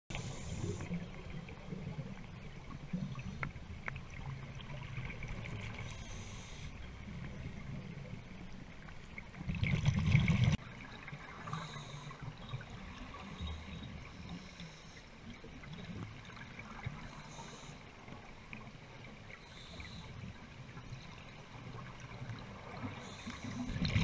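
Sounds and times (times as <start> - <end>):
regulator inhale hiss: 0.1 - 1.0, 5.8 - 6.8, 11.5 - 12.3, 13.3 - 15.2, 17.0 - 17.9, 19.4 - 20.3, 22.9 - 23.8
low rumble of water: 0.1 - 24.0
exhaled bubbles rushing: 9.4 - 10.6, 23.7 - 24.0.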